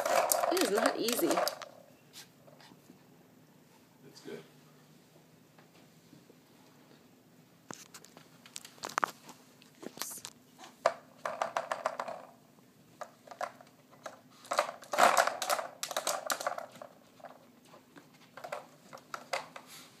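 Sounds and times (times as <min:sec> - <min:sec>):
plastic lids clicking and rattling: 0:00.0 - 0:01.7, 0:10.9 - 0:12.3, 0:13.0 - 0:16.9, 0:18.4 - 0:19.7.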